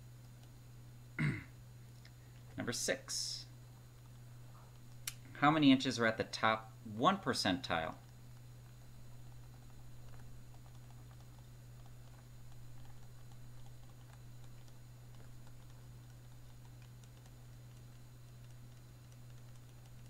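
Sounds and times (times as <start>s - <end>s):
steady low hum: 0.0s - 20.0s
stylus tapping and scratching: 7.6s - 20.0s.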